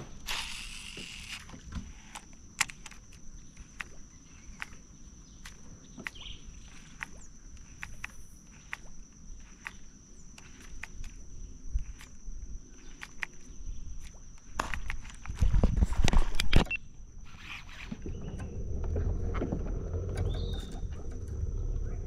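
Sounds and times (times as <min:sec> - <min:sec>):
sharp clicks and ticks: 0:00.0 - 0:12.2, 0:12.8 - 0:15.5
insect drone: 0:00.0 - 0:22.0.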